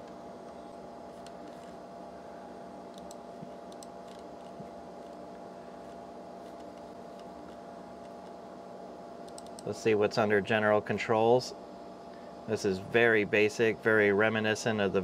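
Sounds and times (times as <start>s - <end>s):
steady machine hum: 0.0s - 15.0s
computer mouse clicks: 1.2s - 1.8s, 2.9s - 5.2s, 5.8s - 8.4s, 9.2s - 9.7s.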